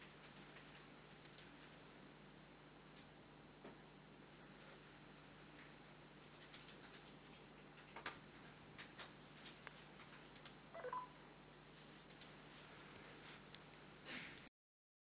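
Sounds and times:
faint clicks: 0.3 - 1.6, 8.8 - 10.6, 12.0 - 13.8
electronic beep: 10.8 - 11.2.

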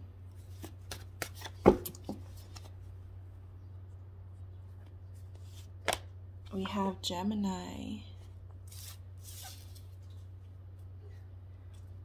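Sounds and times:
steady low hum: 0.0 - 12.0
index cards flipping: 0.5 - 2.7.

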